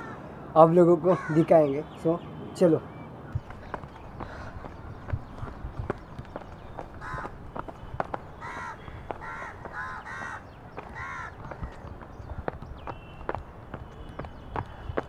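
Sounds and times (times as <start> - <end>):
crow cawing: 0.0 - 0.3, 1.0 - 1.6, 3.7 - 4.8, 6.9 - 7.4, 8.4 - 11.8
footsteps on a path: 3.3 - 15.0.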